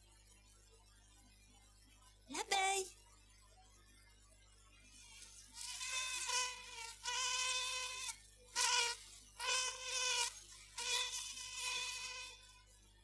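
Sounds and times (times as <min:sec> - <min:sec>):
bee buzzing: 0:05.1 - 0:12.6.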